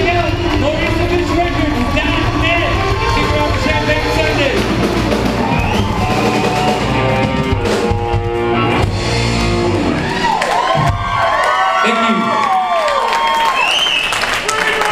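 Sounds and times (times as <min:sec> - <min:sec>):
electric guitar: 0:00.0 - 0:11.2
drum kit: 0:00.0 - 0:11.4
rock band playing: 0:00.0 - 0:11.5.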